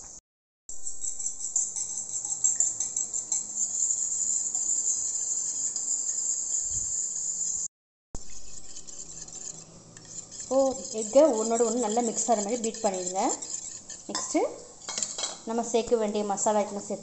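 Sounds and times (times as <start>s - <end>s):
crickets chirping: 0.0s - 7.7s
spoon clinking in steel bowl: 1.0s - 7.6s, 9.3s - 15.4s.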